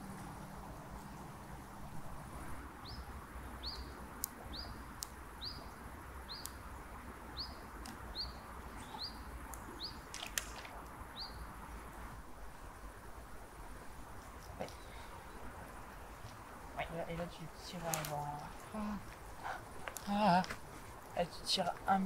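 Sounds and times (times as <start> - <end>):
sharp clicks: 9.5 - 11.0.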